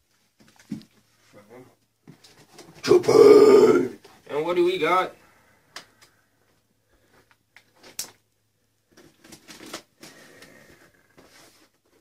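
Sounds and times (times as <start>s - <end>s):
cardboard parcel rustling and scraping: 9.0s - 12.0s.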